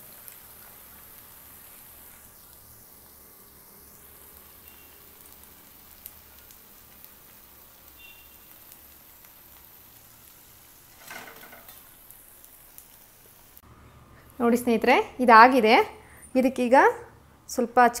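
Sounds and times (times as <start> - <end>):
small crackles: 0.0 - 13.6
hot oil sizzling: 0.0 - 16.7.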